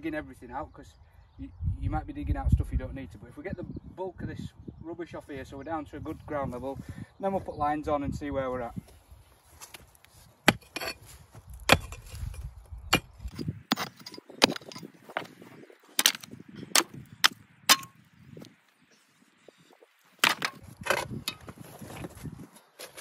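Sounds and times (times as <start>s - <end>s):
pickaxe striking stony ground: 9.6s - 18.5s, 20.2s - 23.0s.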